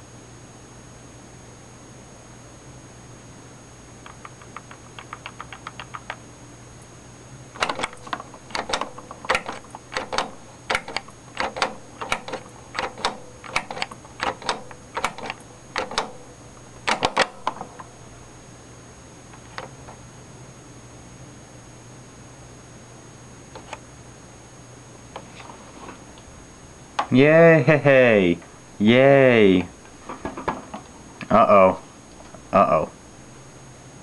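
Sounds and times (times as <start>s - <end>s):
faint hum: 0.0s - 34.0s
monitor buttons clicking: 4.0s - 6.2s, 7.6s - 17.9s.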